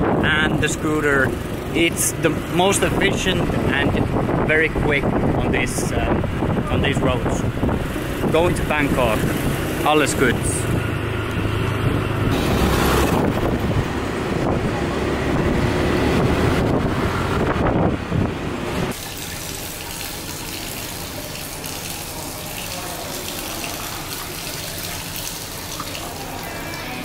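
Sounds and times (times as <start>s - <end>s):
vehicles passing: 0.0s - 27.0s
running tap water: 18.9s - 27.0s.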